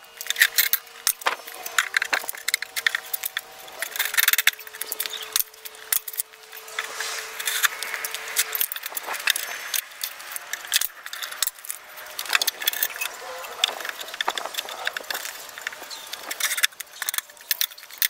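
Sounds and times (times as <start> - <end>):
wood and metal clattering knocks: 1.1 - 6.2.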